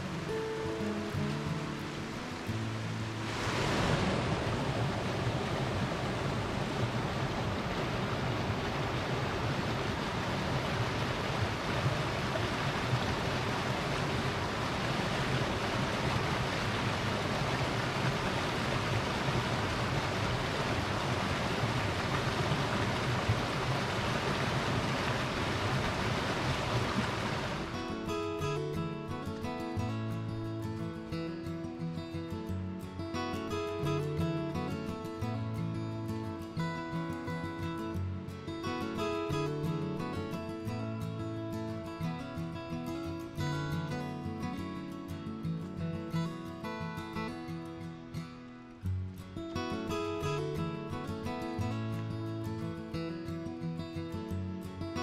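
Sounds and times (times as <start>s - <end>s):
stream rushing over rocks: 0.0s - 30.3s.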